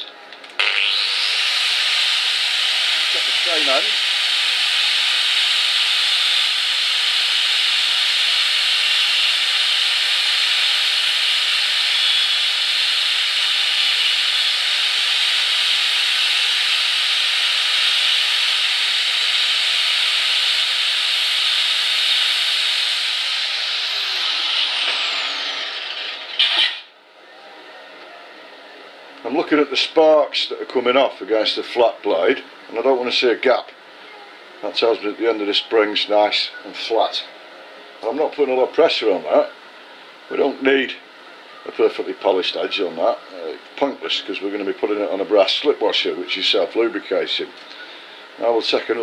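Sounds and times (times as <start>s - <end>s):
angle grinder grinding metal: 0.6s - 26.9s.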